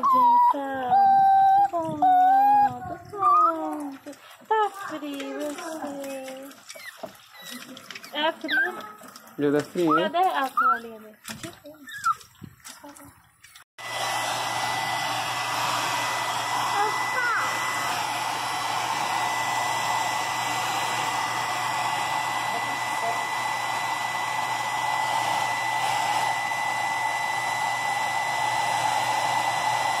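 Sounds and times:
hair dryer running: 13.8s - 30.0s.

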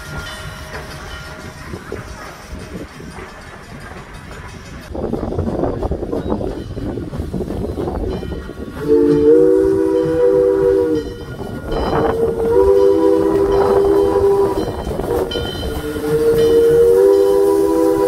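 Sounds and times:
locomotive low running rumble: 0.0s - 18.0s
steam locomotive chime whistle: 8.0s - 18.0s.

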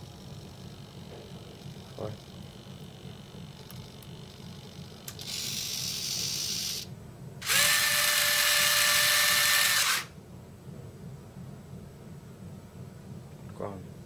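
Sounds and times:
electric retracts whining: 5.0s - 10.1s
gear door mechanism whirring: 5.0s - 10.1s.

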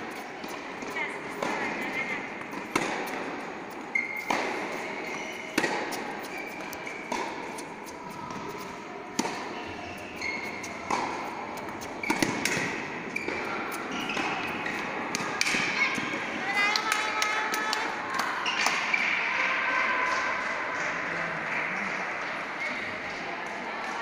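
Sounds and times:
racket striking tennis ball: 0.0s - 16.3s
tennis ball bouncing: 0.0s - 19.1s.

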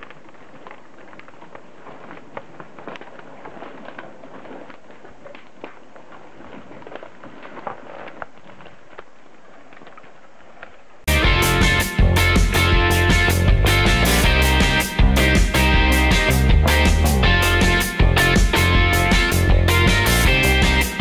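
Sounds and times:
twigs crackling and snapping: 0.0s - 11.0s.

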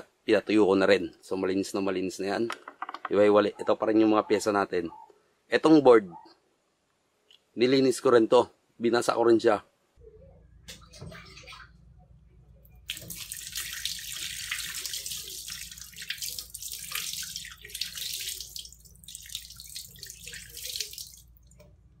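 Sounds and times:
tap water splashing over circuit board: 12.9s - 21.7s.

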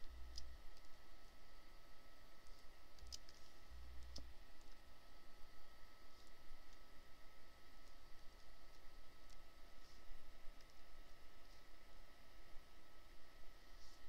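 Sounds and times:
faint high hum: 0.0s - 14.0s
computer mouse clicking: 3.0s - 4.3s.

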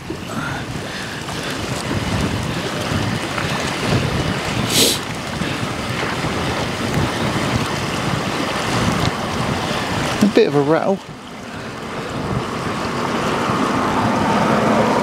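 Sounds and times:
wind buffeting microphone: 0.0s - 15.0s
short hiss: 4.7s - 5.0s.

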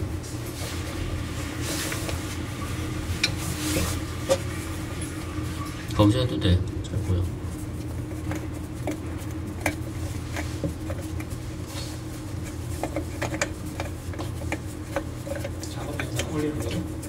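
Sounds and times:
steady low hum: 0.0s - 17.0s
nut turning on threads: 6.8s - 17.0s.

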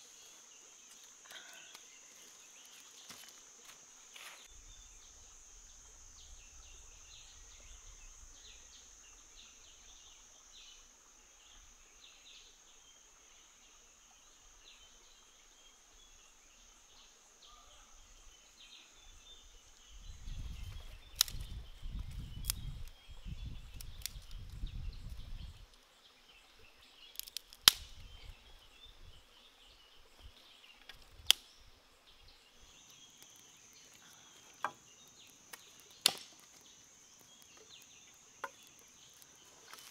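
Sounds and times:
insect drone: 0.0s - 39.9s
sharp snaps: 21.1s - 21.5s, 27.1s - 28.0s, 30.9s - 31.6s, 35.2s - 36.6s.

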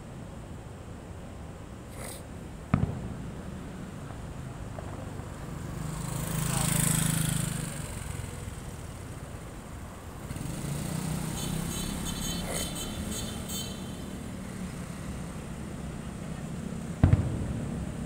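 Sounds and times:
vehicle passing close by: 5.3s - 8.6s, 10.2s - 13.5s
sharp bang: 17.0s - 17.9s.

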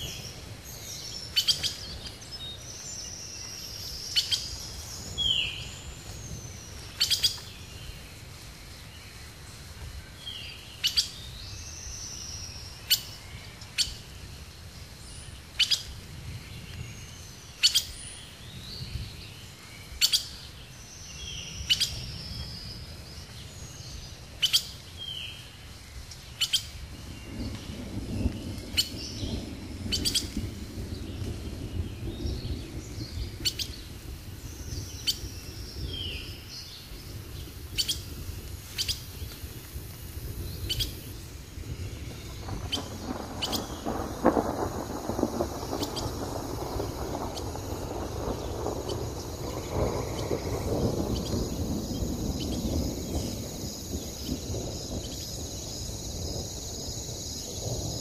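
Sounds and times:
bird chirps: 0.0s - 8.0s
pulsing insect trill: 39.8s - 58.0s.

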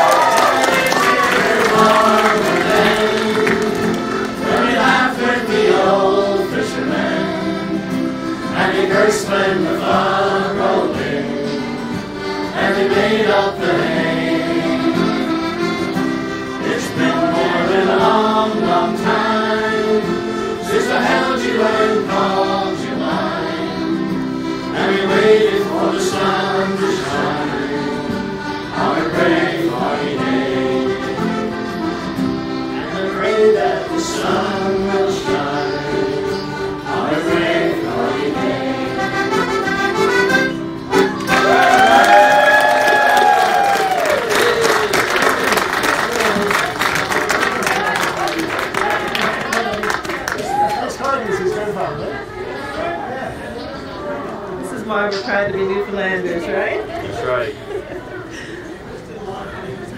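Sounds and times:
people singing along: 0.0s - 40.0s
button accordion playing: 0.0s - 41.7s.

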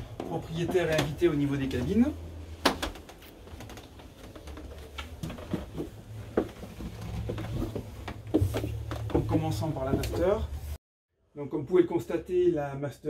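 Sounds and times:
footsteps on stairs: 2.6s - 10.4s.

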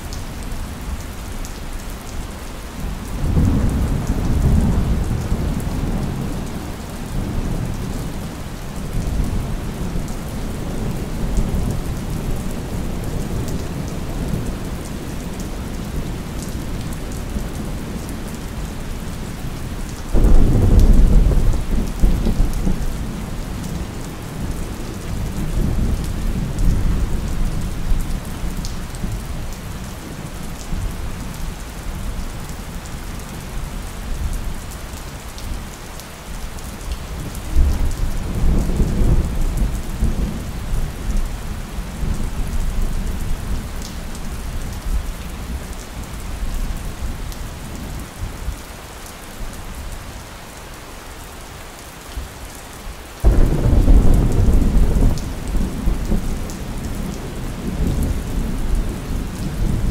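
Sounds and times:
steady rain: 0.0s - 59.9s
thunder rumbling: 53.2s - 59.9s.

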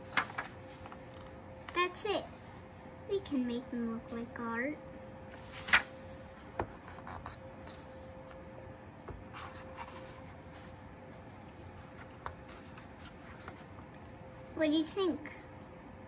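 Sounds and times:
page turning: 0.0s - 1.3s, 5.3s - 8.4s.

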